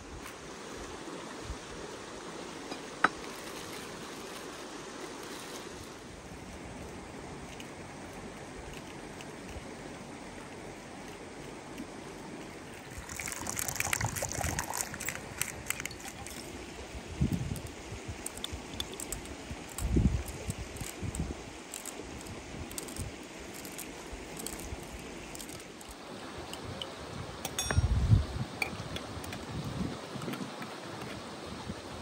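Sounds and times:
mountain stream rushing: 0.0s - 32.0s
crackly rustling: 3.2s - 16.6s, 17.4s - 26.0s.

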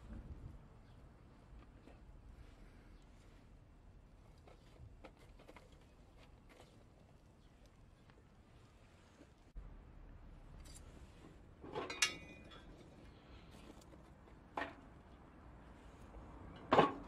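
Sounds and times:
metal clinks and knocks: 11.6s - 13.0s
steel lid clanking onto steel box: 11.7s - 12.7s.

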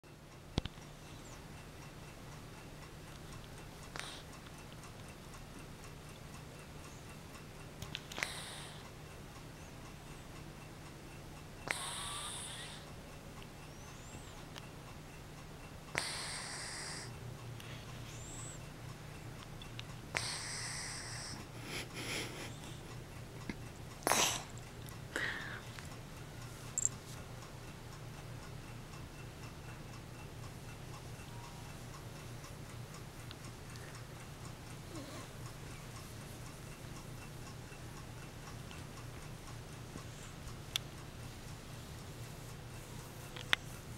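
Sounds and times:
low steady hum: 0.1s - 43.9s
steady ticking: 0.1s - 43.9s
cat snoring: 8.2s - 8.8s, 11.6s - 12.8s, 15.9s - 17.1s, 20.2s - 21.4s.

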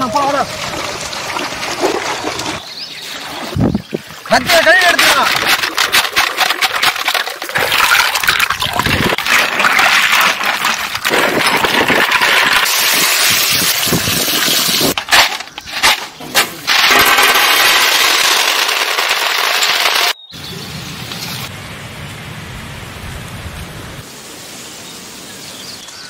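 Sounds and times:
water gushing: 0.0s - 15.0s.

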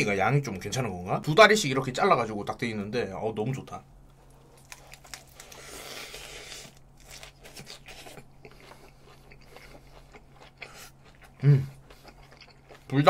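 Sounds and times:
crunchy bite into wrap: 4.6s - 11.3s
chewing with wet clicks: 7.0s - 13.0s.

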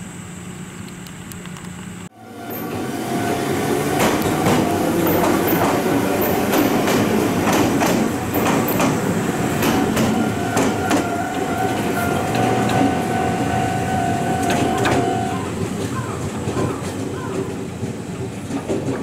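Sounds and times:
steady high tone: 2.1s - 15.6s
train running rumble: 2.1s - 19.0s
train wheels clacking on rail joints: 2.5s - 19.0s.

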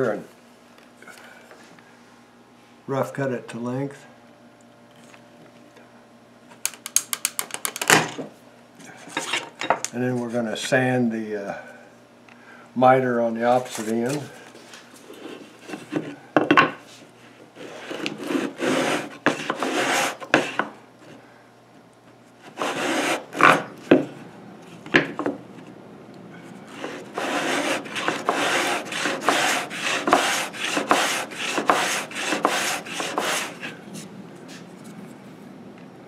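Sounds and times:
sandpaper rasping on wood: 17.6s - 20.6s, 22.5s - 23.6s, 26.7s - 33.8s.

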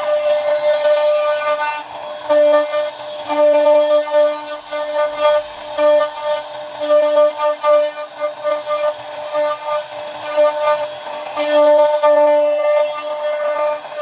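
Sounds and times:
router spindle whining: 0.0s - 14.0s.

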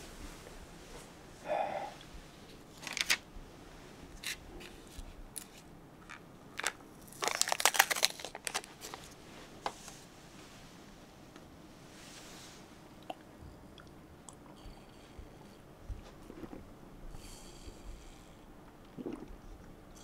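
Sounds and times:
crinkling and clicking: 2.8s - 3.2s, 4.2s - 9.2s.

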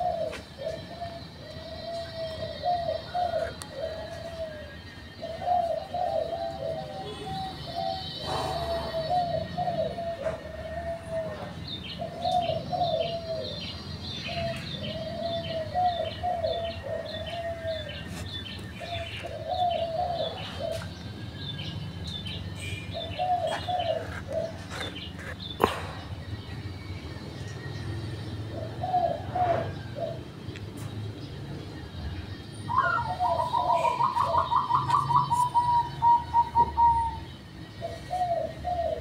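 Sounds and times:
dove cooing: 0.0s - 26.1s, 27.6s - 31.7s, 32.4s - 39.0s
small bird chirping: 11.6s - 28.8s, 29.6s - 39.0s.

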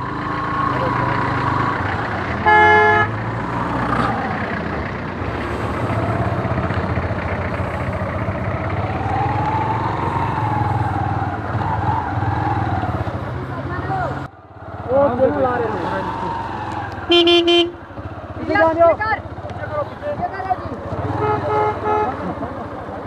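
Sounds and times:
motorcycle engine at low speed: 0.0s - 23.0s
vehicle horn: 2.4s - 3.2s, 17.1s - 17.8s, 21.0s - 22.2s.

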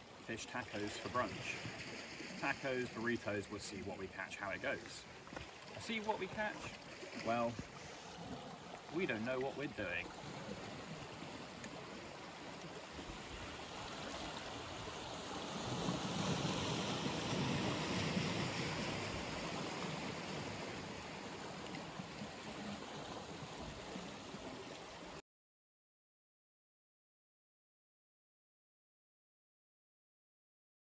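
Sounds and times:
wind: 0.0s - 25.2s
water lapping on rocks: 0.1s - 25.2s.

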